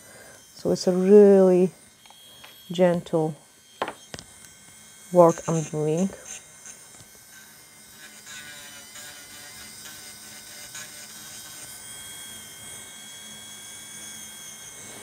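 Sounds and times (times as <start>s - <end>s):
electric nail file whining: 0.0s - 15.0s.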